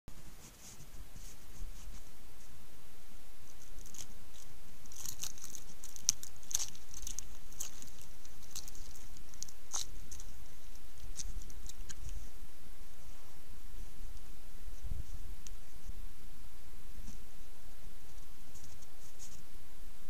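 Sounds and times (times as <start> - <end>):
crackling and scratching: 0.1 - 2.6, 3.4 - 12.4, 18.0 - 19.5
steady hiss: 0.1 - 20.0.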